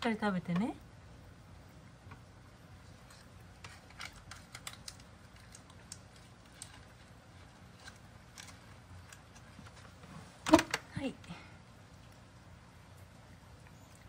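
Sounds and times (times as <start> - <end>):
low room hum: 0.0 - 14.0
cat crunching treats: 2.7 - 10.0.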